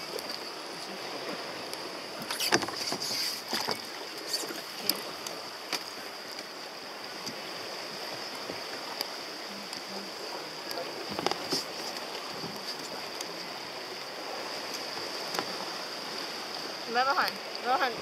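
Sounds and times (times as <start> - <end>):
water and wind hiss: 0.0 - 18.0
kayak hulls knocking: 2.2 - 6.5, 7.2 - 13.6.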